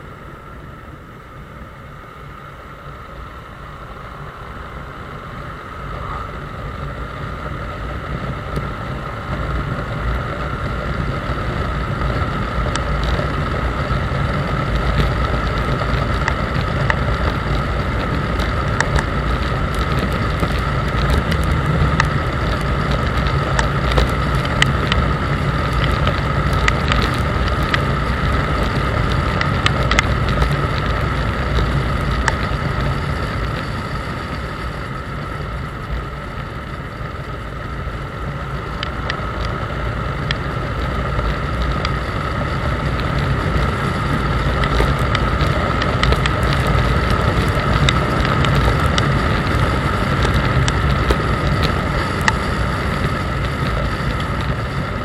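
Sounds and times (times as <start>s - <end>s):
motorcycle engine running: 0.0s - 55.0s
wind on microphone: 0.0s - 55.0s.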